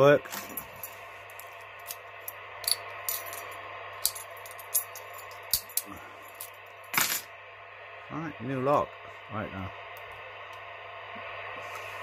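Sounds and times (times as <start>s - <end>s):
radio static hiss: 0.0s - 2.2s, 7.0s - 12.0s.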